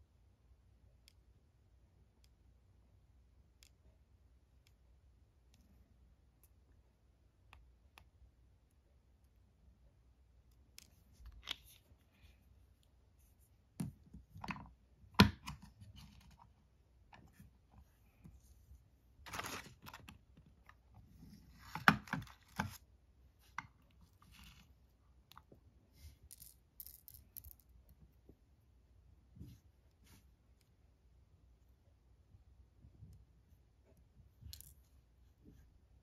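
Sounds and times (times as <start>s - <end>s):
paper rustling: 19.3s - 20.1s.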